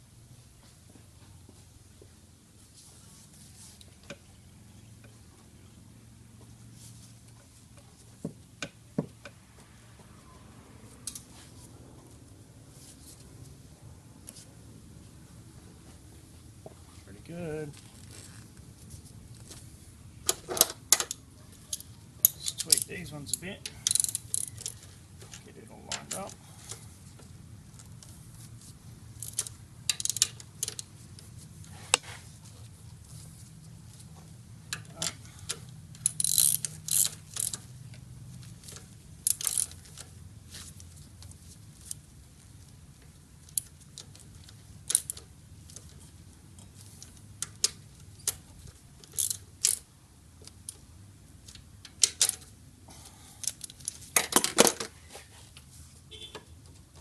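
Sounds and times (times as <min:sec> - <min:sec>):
socket ratchet clicking: 0:21.0 - 0:24.8, 0:29.2 - 0:30.9, 0:35.5 - 0:37.7, 0:38.7 - 0:40.1.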